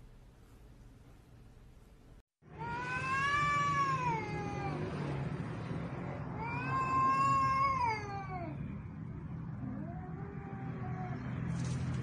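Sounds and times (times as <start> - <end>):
cat yowling: 2.6 - 5.0, 6.3 - 8.7, 9.6 - 11.6.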